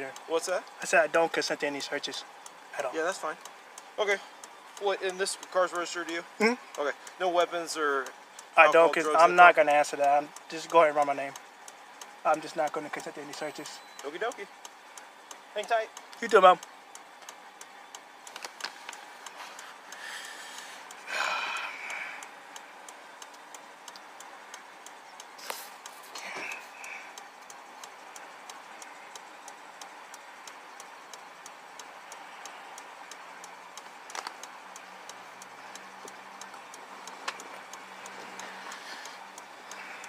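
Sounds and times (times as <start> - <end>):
sharp clicks: 0.0 - 40.0
turn-signal ticking: 0.0 - 40.0.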